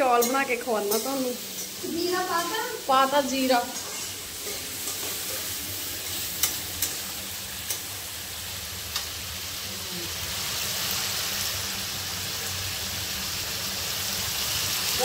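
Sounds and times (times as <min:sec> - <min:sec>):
vegetables sizzling in oil: 0:00.0 - 0:15.0
metal spatula clinking on pan: 0:00.1 - 0:01.8, 0:06.4 - 0:07.9.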